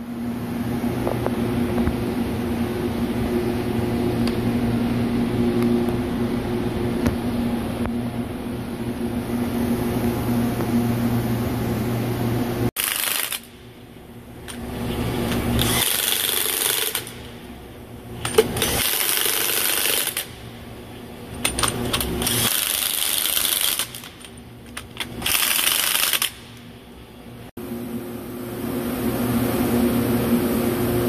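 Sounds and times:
impact wrench hammering bolts: 0:18.2 - 0:20.4, 0:21.3 - 0:26.6.

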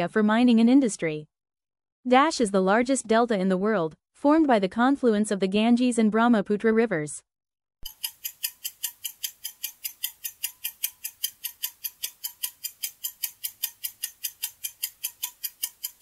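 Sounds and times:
clock-like timer ticks: 0:07.8 - 0:16.0.

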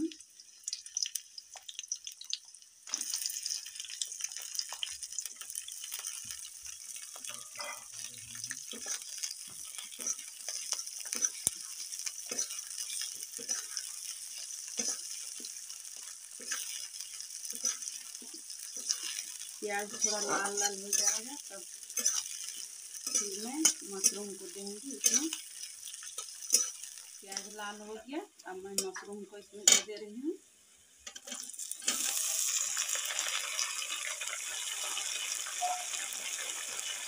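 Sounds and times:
onions sizzling in hot oil: 0:00.0 - 0:37.0
spatula scraping metal pan: 0:18.7 - 0:24.2.

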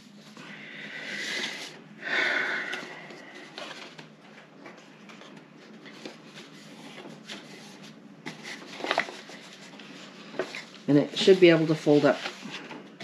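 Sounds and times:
paper rustling: 0:02.7 - 0:13.0.

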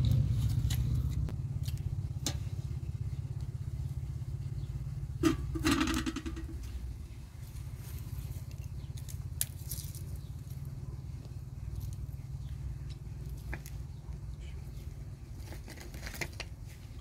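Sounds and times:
low pulsing rumble: 0:00.0 - 0:15.4
dry twigs snapping: 0:08.4 - 0:10.2.

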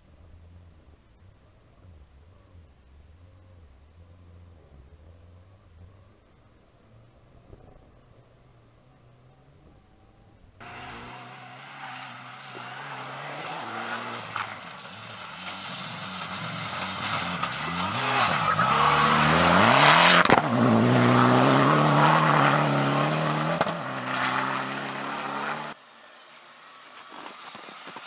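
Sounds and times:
rally car engine revving hard: 0:10.6 - 0:25.8
sharp crack: 0:11.8 - 0:21.2, 0:23.3 - 0:24.6.

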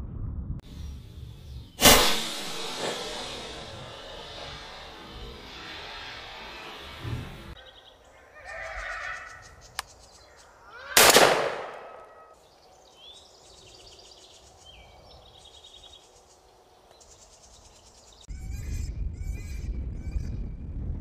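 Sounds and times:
steady low rumble: 0:00.0 - 0:07.6
rifle shot: 0:01.8 - 0:05.6, 0:11.0 - 0:12.2.

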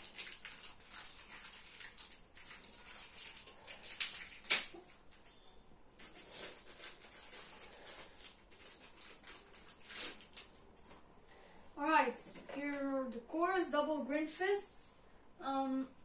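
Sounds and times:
plastic packaging crinkling: 0:00.0 - 0:05.4, 0:06.0 - 0:11.0
sharp plastic crackle: 0:00.0 - 0:05.4, 0:06.0 - 0:11.0.

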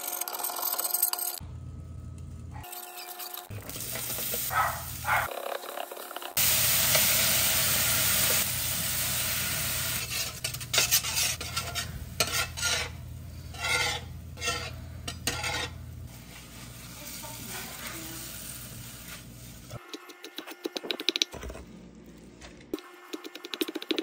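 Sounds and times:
liquid sizzling on hot griddle: 0:03.6 - 0:05.2, 0:06.4 - 0:19.8
spatula scraping griddle: 0:09.9 - 0:20.0.

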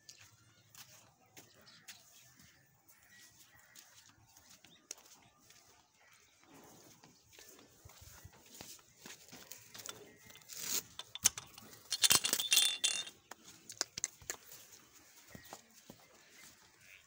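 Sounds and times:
metallic clinks and rattling: 0:09.6 - 0:14.2.

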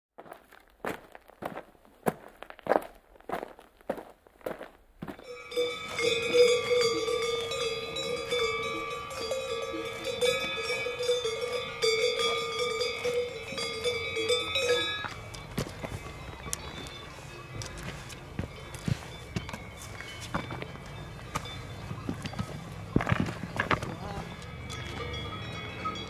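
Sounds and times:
cowbell clanking: 0:05.2 - 0:26.0.

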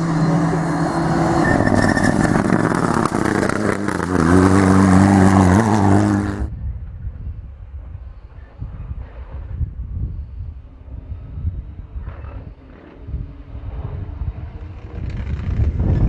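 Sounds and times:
rally car engine revving: 0:00.0 - 0:06.5.

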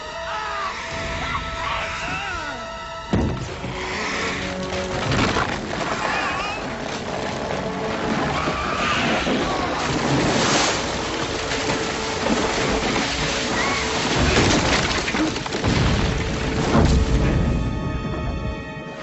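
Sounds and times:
dramatic music: 0:00.0 - 0:19.0
water splashing: 0:04.4 - 0:17.2.

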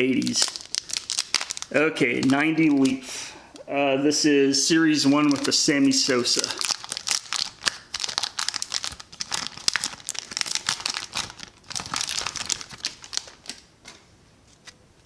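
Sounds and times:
foil wrapper crinkling and tearing: 0:00.2 - 0:03.0, 0:05.1 - 0:13.7.

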